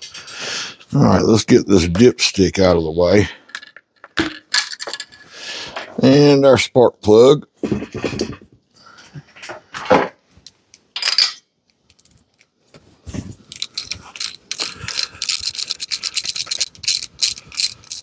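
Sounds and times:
hand ratchet clicking rapidly: 0:13.5 - 0:18.0.

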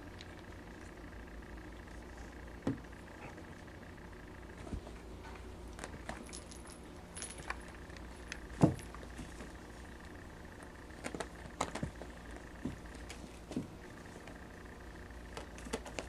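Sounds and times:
light metallic jingling: 0:06.2 - 0:07.8.

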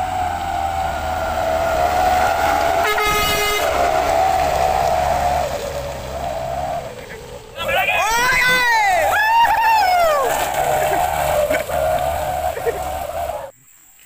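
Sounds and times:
truck horn: 0:00.0 - 0:07.5
diesel truck running: 0:00.0 - 0:13.5.

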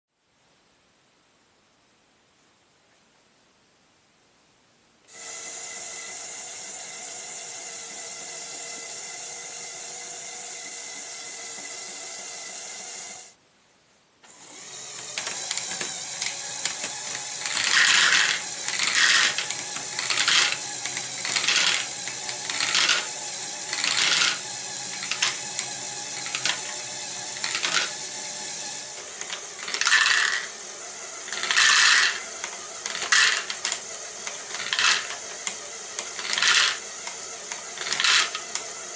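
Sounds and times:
small electric motor whining: 0:05.1 - 0:13.4, 0:14.3 - 0:38.9
plastic balls rattling in drum: 0:15.0 - 0:28.0, 0:29.1 - 0:30.5, 0:31.3 - 0:38.6.

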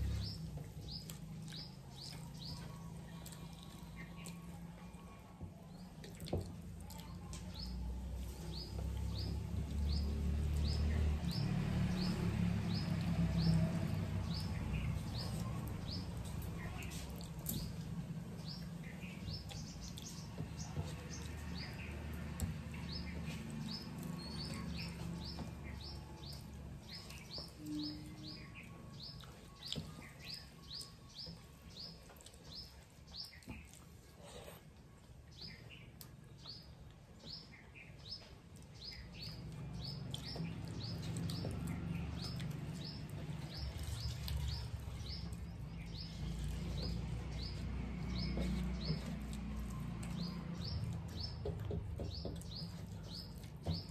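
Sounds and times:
bird chirping: 0:22.8 - 0:34.5, 0:35.3 - 0:53.9.

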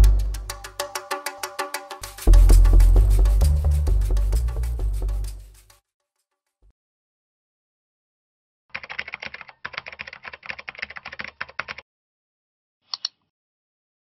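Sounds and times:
mouse click: 0:12.9 - 0:13.3.

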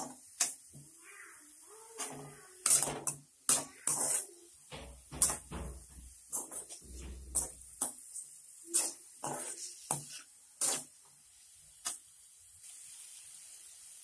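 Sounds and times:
onions sauteing: 0:00.0 - 0:14.0
spatula scraping metal pan: 0:02.0 - 0:10.9.

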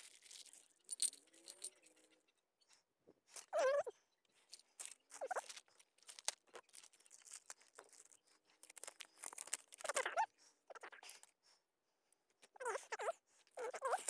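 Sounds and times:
plastic and paper crinkling: 0:00.0 - 0:01.8, 0:04.5 - 0:10.1.

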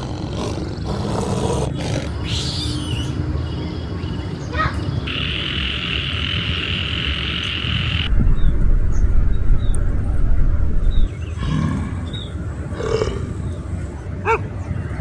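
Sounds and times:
low growl: 0:00.0 - 0:02.2, 0:11.3 - 0:13.6
frog chorus trilling: 0:05.0 - 0:08.1
deep rumbling roar: 0:08.0 - 0:13.7.

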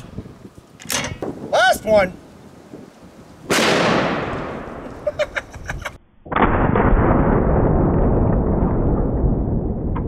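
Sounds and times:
shotgun blast echo: 0:03.5 - 0:04.7
slowed-down blast rumble: 0:06.2 - 0:10.0.

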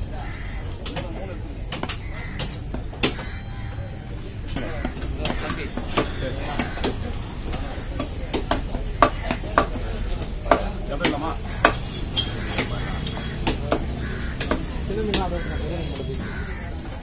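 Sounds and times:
knife chopping on wooden block: 0:10.5 - 0:15.2.

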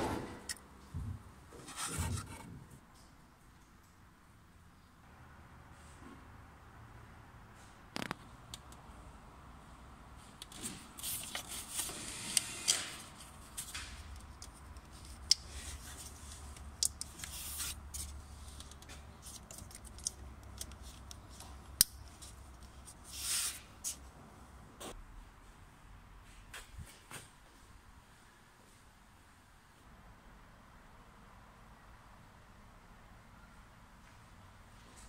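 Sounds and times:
scraping and rustling: 0:01.5 - 0:02.8.

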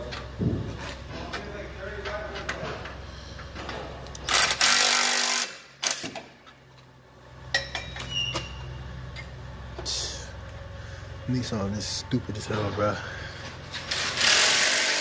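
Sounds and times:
impact wrench burst: 0:04.3 - 0:06.1, 0:13.8 - 0:15.0.

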